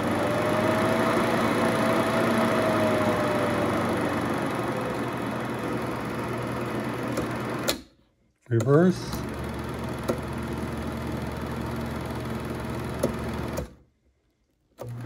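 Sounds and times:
film projector motor whirring: 0.0s - 7.8s, 9.0s - 13.7s, 14.8s - 15.0s.

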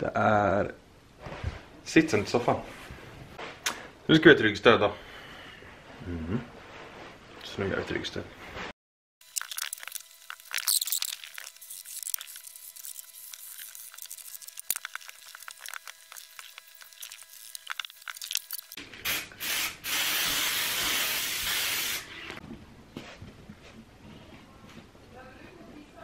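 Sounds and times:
aerosol spray can hissing: 19.1s - 22.1s.

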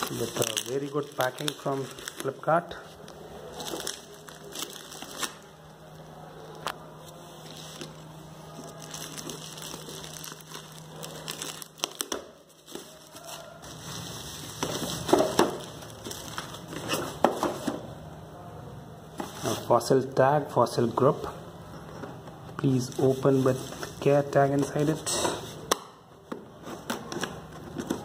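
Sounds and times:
bubble wrap crinkling: 0.0s - 17.3s, 22.6s - 25.7s.

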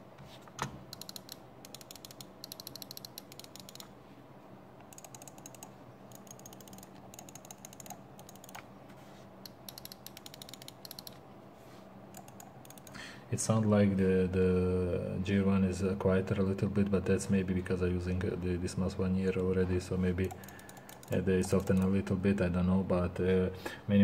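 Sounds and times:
rapid mouse button clicks: 9.5s - 11.2s.

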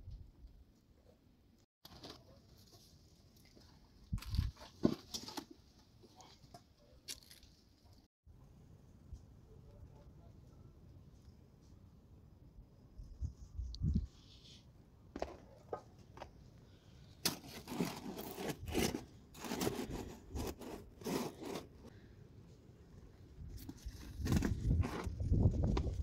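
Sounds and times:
breads rustling and scraping: 17.2s - 21.9s.

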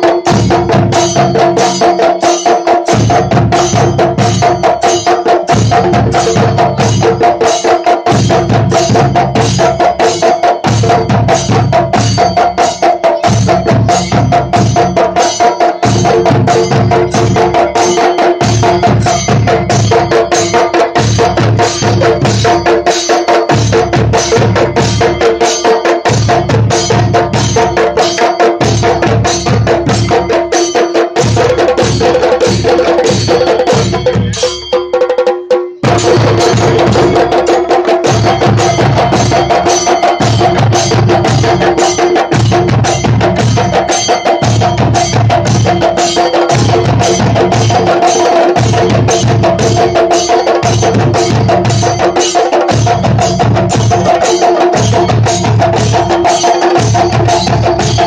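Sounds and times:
drums beaten rapidly with sticks: 0.0s - 58.0s
small hand cymbals ringing: 31.9s - 49.3s.

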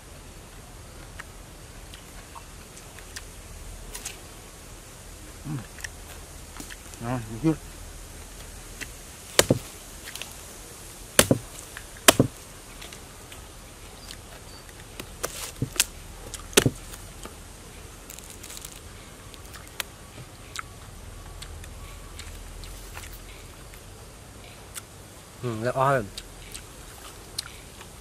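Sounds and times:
knife chopping palm trunk: 9.3s - 10.4s, 11.1s - 12.5s, 15.0s - 15.9s, 16.5s - 17.1s.

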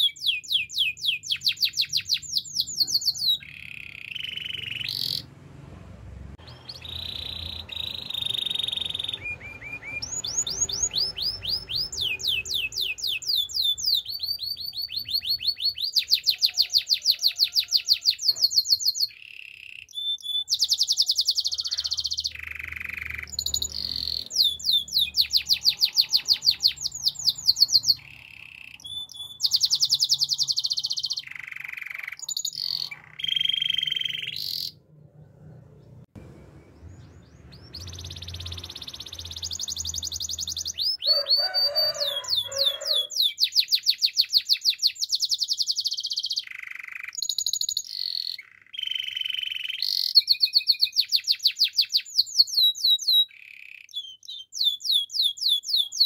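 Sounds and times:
canary singing: 0.0s - 5.7s, 6.4s - 56.0s.

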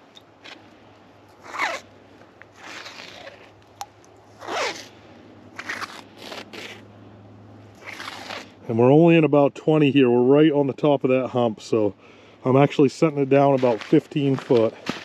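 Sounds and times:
fishing line zipping swishes: 1.4s - 1.9s, 2.5s - 3.6s, 4.3s - 6.8s, 7.8s - 8.6s.

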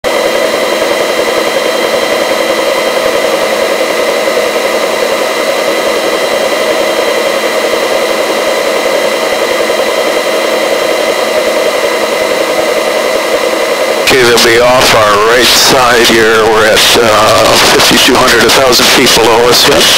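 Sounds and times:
helicopter turbine whine: 0.0s - 19.9s
rotor and airflow rushing: 0.0s - 19.9s.

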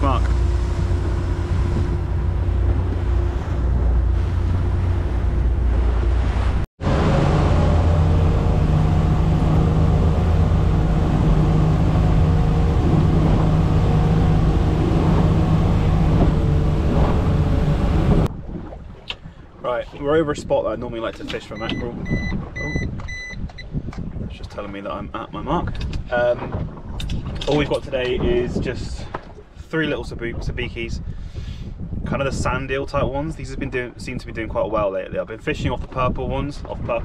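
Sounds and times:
motorboat engine running: 0.0s - 18.3s
wind and water rushing: 0.0s - 37.0s.

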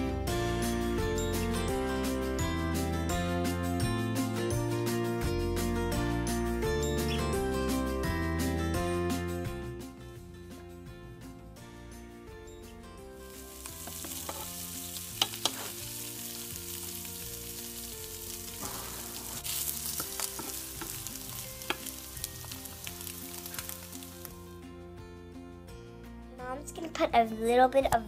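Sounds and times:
meat sizzling in frying pan: 13.2s - 24.5s.

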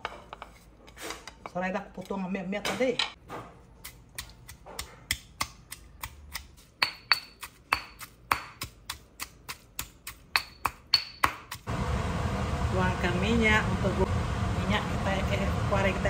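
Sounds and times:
pestle pounding in mortar: 3.8s - 11.7s.

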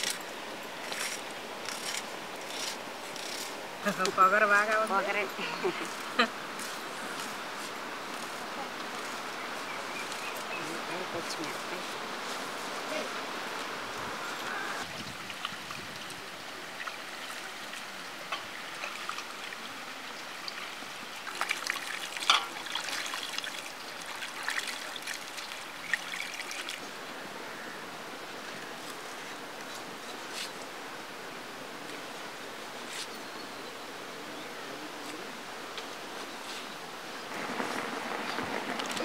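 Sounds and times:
water sloshing and splashing: 14.8s - 26.9s.

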